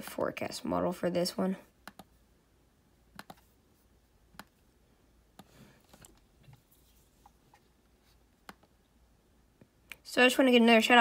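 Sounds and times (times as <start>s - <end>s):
computer mouse clicks: 1.8s - 2.2s, 3.1s - 3.5s, 8.4s - 8.7s.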